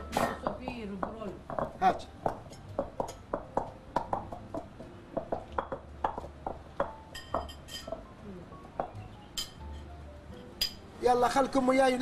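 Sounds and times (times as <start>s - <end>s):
pestle pounding in stone mortar: 0.0s - 8.1s
dishes clinking: 6.8s - 8.1s, 8.8s - 10.9s.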